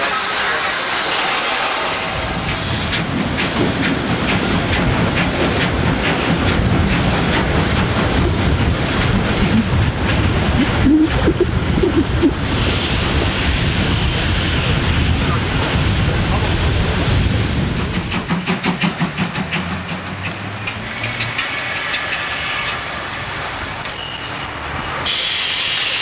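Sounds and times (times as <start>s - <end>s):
rhythmic rail clicks: 0.0s - 26.0s
train rumble and hiss: 0.0s - 26.0s
wind on microphone: 5.8s - 18.0s.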